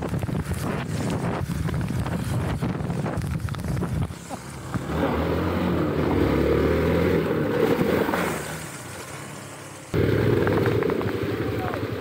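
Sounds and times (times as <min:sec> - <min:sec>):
motorcycle engine running: 0:09.9 - 0:12.0.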